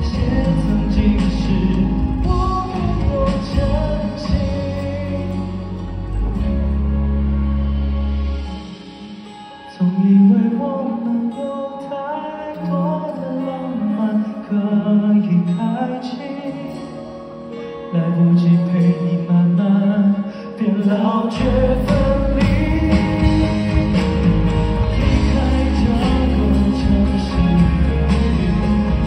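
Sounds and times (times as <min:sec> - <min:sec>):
man singing ballad: 0:00.0 - 0:06.7, 0:09.2 - 0:29.0
band with heavy bass and beat: 0:00.0 - 0:11.2, 0:21.3 - 0:29.0
soft guitar: 0:00.0 - 0:29.0.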